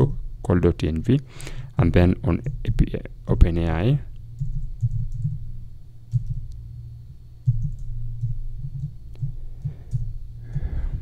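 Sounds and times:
typing on computer keyboard: 4.4 - 5.4, 6.1 - 6.4, 7.4 - 9.3.

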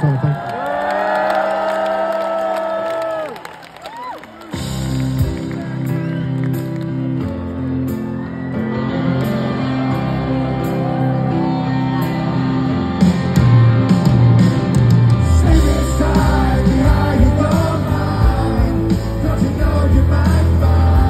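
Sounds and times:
electric guitar and keys chords: 4.5 - 21.0
live rock band playing: 4.5 - 21.0.

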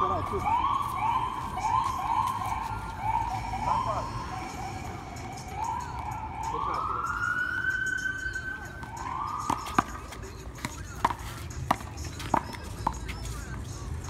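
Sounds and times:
siren wailing: 0.0 - 10.2.

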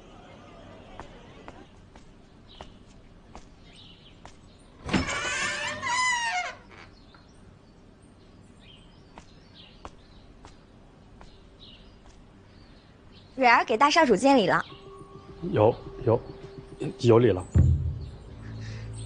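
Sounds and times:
wooden doors creaking open: 4.8 - 7.0
faint bird chirps: 11.3 - 19.0.

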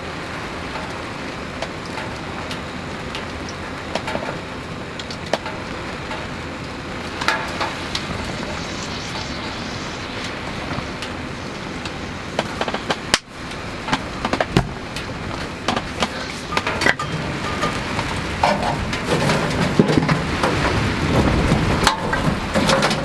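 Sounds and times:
wood stove fire crackling: 0.1 - 23.0
low rushing noise: 5.4 - 23.0.

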